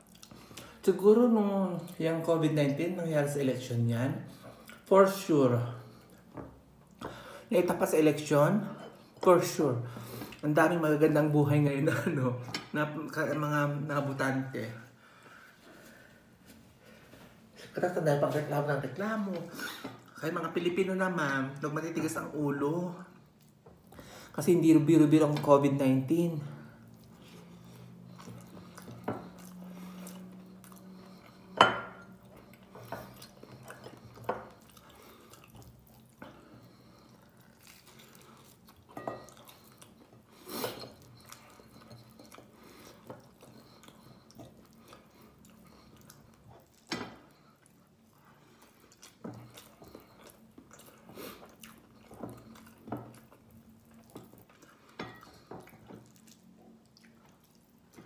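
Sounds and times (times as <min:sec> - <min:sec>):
chewing: 0:00.0 - 0:00.9, 0:04.3 - 0:04.9, 0:26.6 - 0:58.0.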